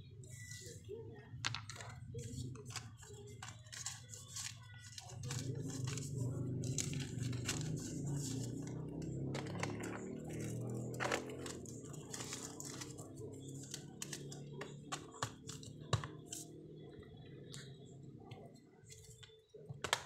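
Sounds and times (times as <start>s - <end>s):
low background murmur: 0.0s - 20.0s
paper envelopes crinkling: 1.6s - 16.4s.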